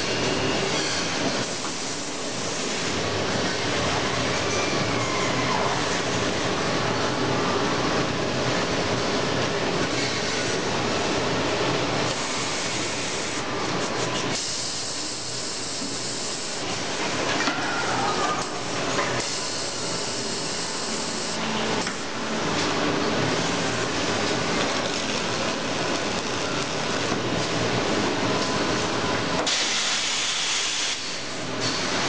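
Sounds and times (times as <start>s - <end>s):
welding machine whirring: 12.0s - 17.2s, 18.6s - 22.1s, 23.3s - 32.0s.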